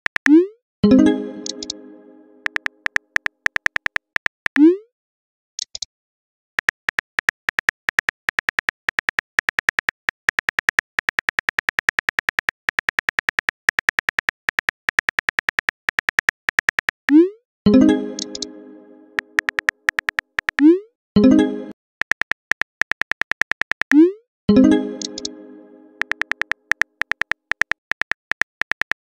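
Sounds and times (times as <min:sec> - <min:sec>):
phone keyboard typing clicks: 0:01.4 - 0:01.8, 0:02.4 - 0:04.7, 0:06.6 - 0:17.0, 0:18.1 - 0:18.5, 0:19.2 - 0:20.7, 0:22.0 - 0:24.0, 0:25.0 - 0:25.4, 0:26.0 - 0:29.0.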